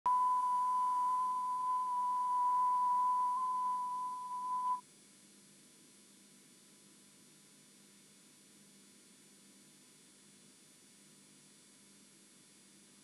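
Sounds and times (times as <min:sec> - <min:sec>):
high test tone beep: 0:00.0 - 0:04.8
faint tape hiss: 0:00.1 - 0:04.8.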